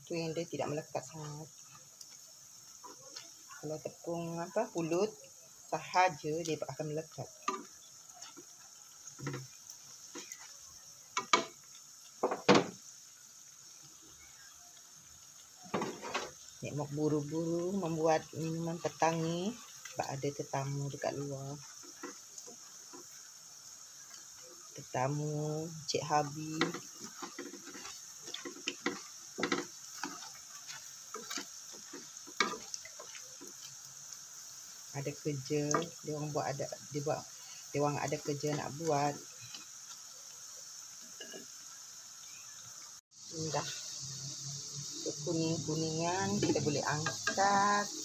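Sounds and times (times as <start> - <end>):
dough deep-frying in oil: 0.0 - 48.0
utensil knocking against wok: 26.6 - 30.1.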